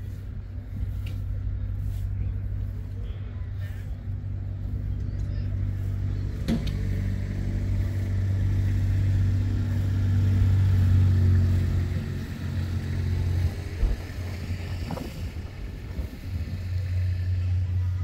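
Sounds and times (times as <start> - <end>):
engine droning: 0.0 - 18.0.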